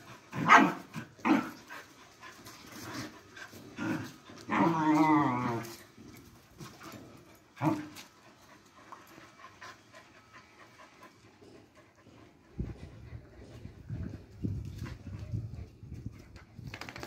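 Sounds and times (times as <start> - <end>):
dog barking: 0.4 - 0.8
dog growl-whine: 3.7 - 5.8
quiet dog sounds: 5.4 - 16.7.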